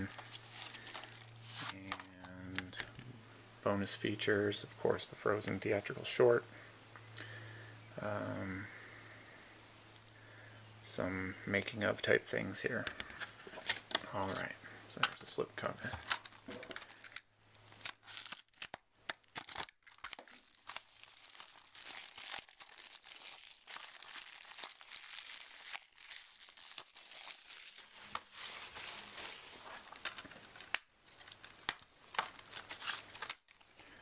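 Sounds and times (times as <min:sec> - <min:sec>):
plastic wrap crinkling and tearing: 0:00.0 - 0:02.8, 0:15.6 - 0:33.8.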